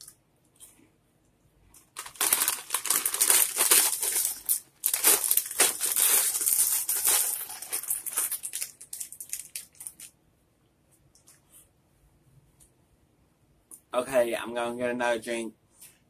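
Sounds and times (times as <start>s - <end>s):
plastic bag crackling: 1.9s - 10.2s.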